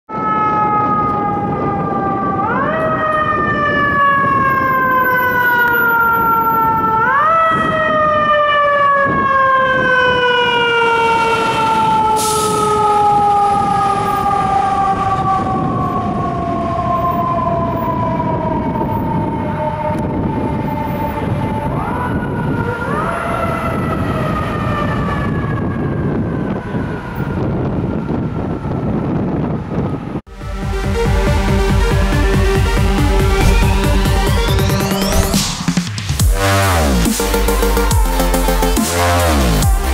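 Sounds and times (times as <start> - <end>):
fire engine siren: 0.1 - 39.9
low traffic noise: 33.0 - 35.8.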